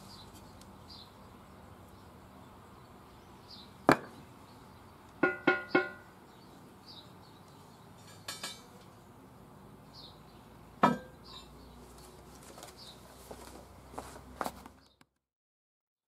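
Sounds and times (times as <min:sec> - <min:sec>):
knocking on steel plate: 0:05.2 - 0:06.0, 0:10.8 - 0:11.2.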